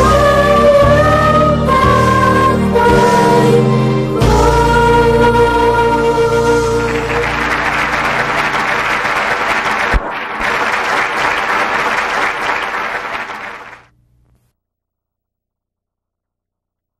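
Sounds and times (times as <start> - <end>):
audience applause: 6.9 - 13.9.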